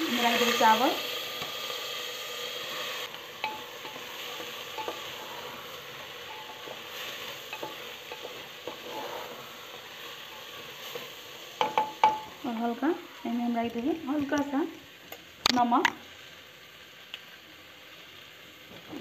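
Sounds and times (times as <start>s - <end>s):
rice sizzling in hot oil: 0.0s - 19.0s
spatula scraping and tapping pot: 3.0s - 12.8s.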